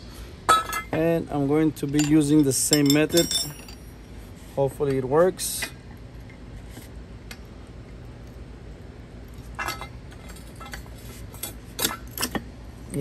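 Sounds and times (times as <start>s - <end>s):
low steady background noise: 0.0s - 13.0s
metallic clinks of wrench: 2.0s - 3.9s.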